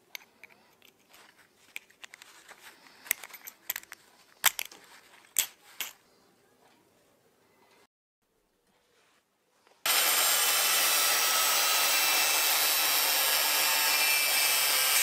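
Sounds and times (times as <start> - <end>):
metallic clicks and clinks: 3.0 - 6.0.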